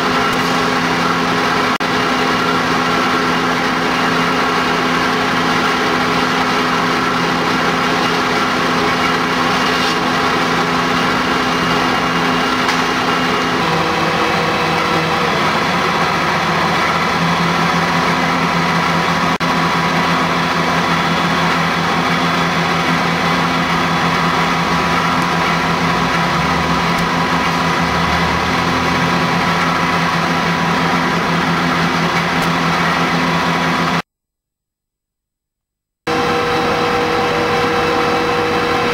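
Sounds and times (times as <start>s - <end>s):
fire engine engines running: 0.0s - 34.0s, 36.1s - 38.9s.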